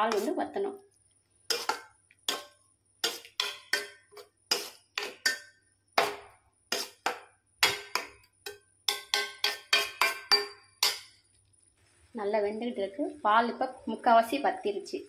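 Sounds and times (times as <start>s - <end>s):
metal spoon clinking in pan: 1.5s - 5.5s, 7.6s - 11.2s.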